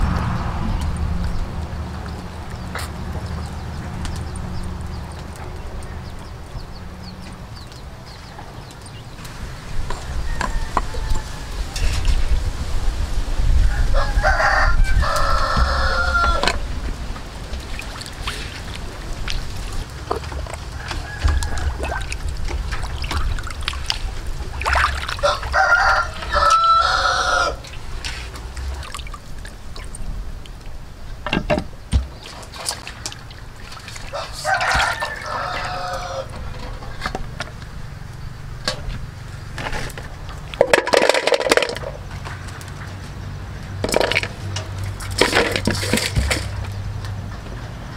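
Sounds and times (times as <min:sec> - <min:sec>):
rooster crowing: 0:09.9 - 0:11.9, 0:13.6 - 0:16.7, 0:20.7 - 0:22.1, 0:25.2 - 0:27.7, 0:34.1 - 0:36.8
water sloshing in metal basin: 0:16.2 - 0:47.0.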